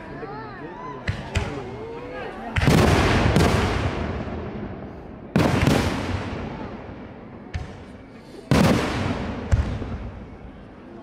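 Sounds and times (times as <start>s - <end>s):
fireworks booming: 2.5s - 10.7s.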